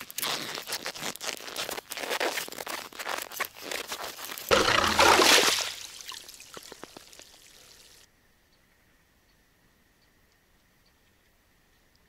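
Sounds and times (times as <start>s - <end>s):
ice auger crunching through ice: 0.0s - 6.8s
water rushing up: 4.5s - 7.9s
water trickling and dripping: 4.5s - 8.1s.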